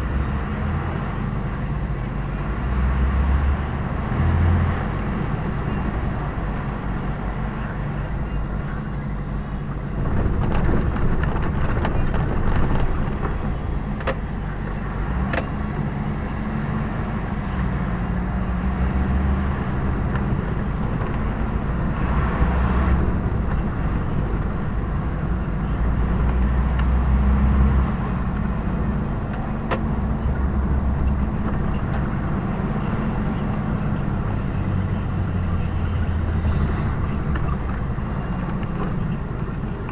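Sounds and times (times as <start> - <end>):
truck diesel engine running: 0.0 - 39.9
sharp clicks and rattles: 10.0 - 14.3.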